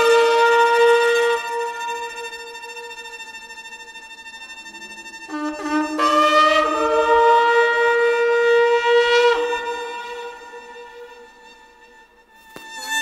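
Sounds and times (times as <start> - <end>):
shofar blast: 0.0 - 3.5, 5.3 - 13.0.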